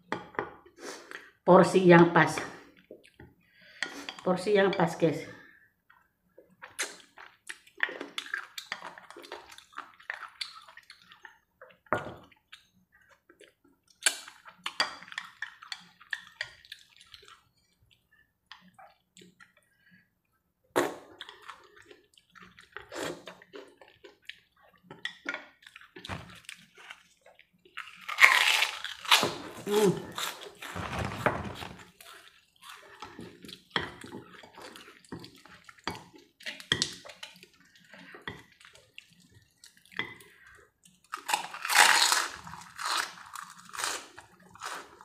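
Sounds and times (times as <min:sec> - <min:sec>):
wet slurping and chewing: 0:06.6 - 0:11.4, 0:20.8 - 0:45.0.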